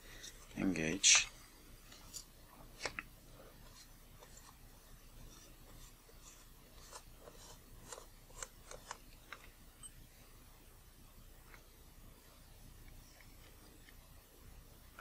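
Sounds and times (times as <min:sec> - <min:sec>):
faint rubbing and clicks: 0:01.9 - 0:09.9.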